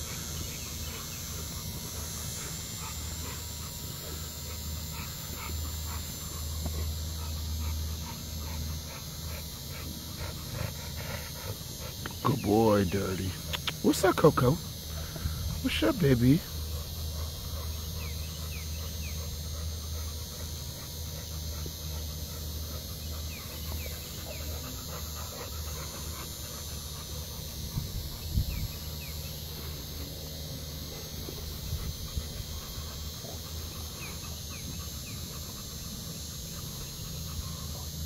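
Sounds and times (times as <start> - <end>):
dogs panting: 0.0 - 38.0.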